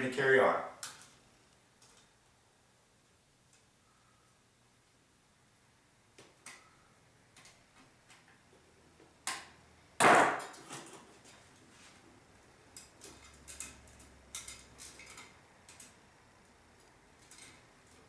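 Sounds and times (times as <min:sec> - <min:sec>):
metal cable clicking and clinking: 0:12.7 - 0:18.0.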